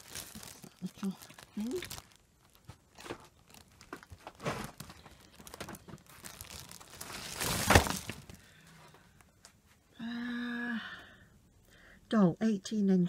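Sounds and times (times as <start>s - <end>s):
plastic bag crinkling: 0.0s - 8.6s.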